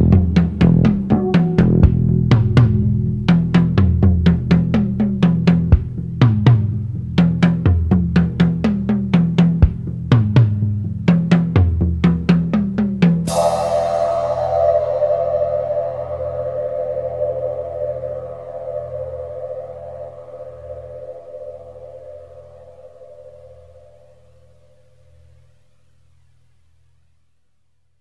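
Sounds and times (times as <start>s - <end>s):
sliding bass line: 0.0s - 11.6s, 13.2s - 23.6s
held synthesizer chord: 1.1s - 3.3s, 13.3s - 24.6s.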